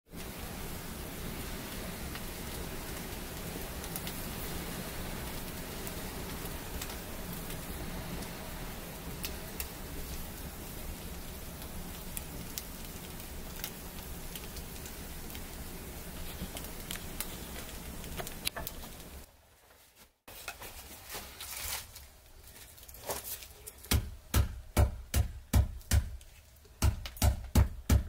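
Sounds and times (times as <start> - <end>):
rushing hiss: 0.1 - 19.3
wood fire crackling and popping: 0.1 - 19.3, 20.3 - 28.0.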